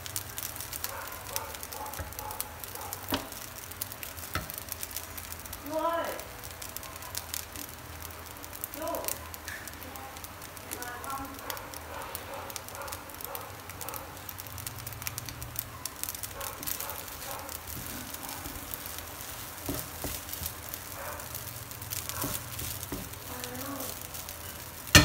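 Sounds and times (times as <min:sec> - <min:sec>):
rice sizzling in frying pan: 0:00.0 - 0:25.0
wooden spatula stirring: 0:16.0 - 0:25.0.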